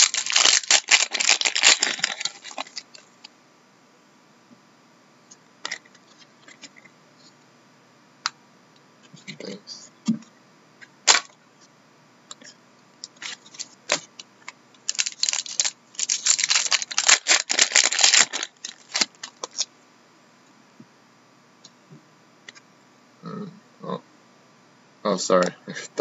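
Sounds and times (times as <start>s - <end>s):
wrapper tearing and crinkling: 0.0s - 3.0s, 13.2s - 14.2s, 14.9s - 19.7s.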